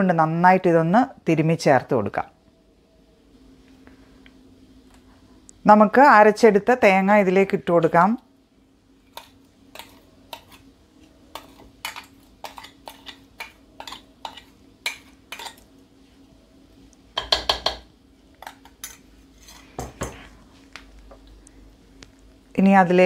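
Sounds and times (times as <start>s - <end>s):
metal spoon tapping a jar: 17.2s - 17.8s.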